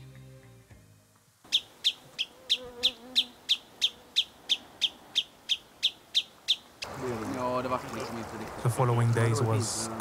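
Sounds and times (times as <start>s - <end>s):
bird chip alarm calls: 1.5s - 6.9s.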